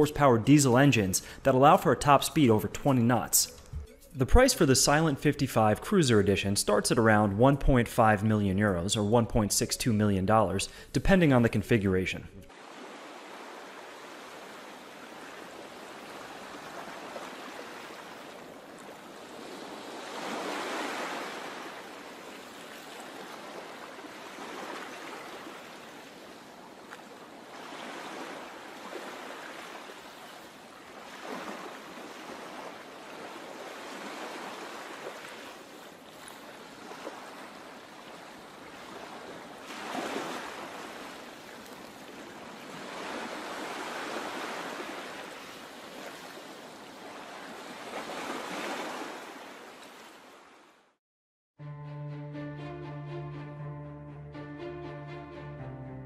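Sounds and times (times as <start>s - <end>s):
sea waves washing: 0.0s - 5.6s, 12.4s - 50.6s.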